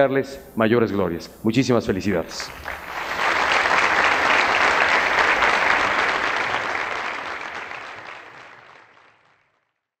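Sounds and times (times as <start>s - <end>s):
audience applauding: 2.4s - 9.7s.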